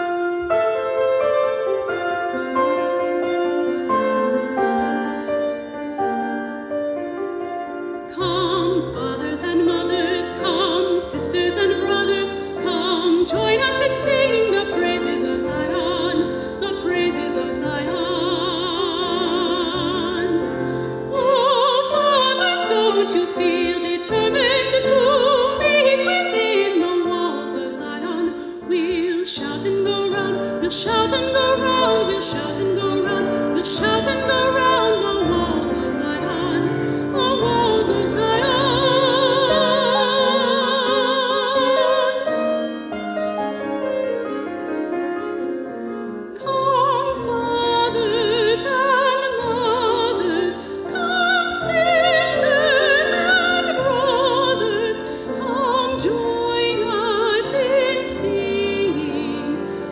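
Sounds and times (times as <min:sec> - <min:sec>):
woman singing classical solo: 0:08.1 - 0:42.4, 0:46.4 - 0:59.9.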